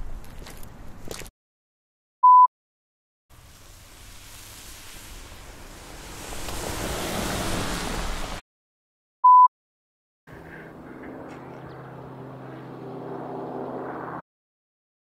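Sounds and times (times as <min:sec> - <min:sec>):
humming street ambience: 0:00.0 - 0:01.3, 0:03.4 - 0:08.4, 0:10.3 - 0:14.2
short high-pitched beep: 0:02.2 - 0:02.5, 0:09.2 - 0:09.5.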